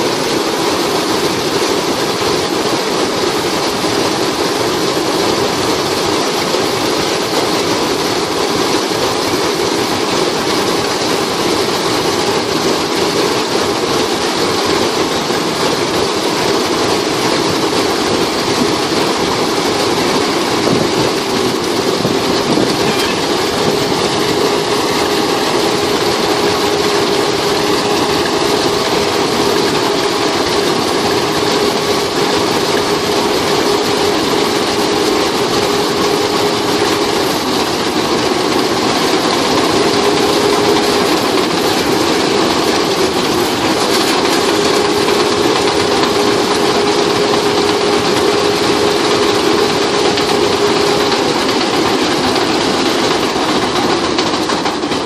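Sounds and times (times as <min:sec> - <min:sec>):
combine harvester running: 0:00.0 - 0:55.0
steady droning tone: 0:16.3 - 0:53.8.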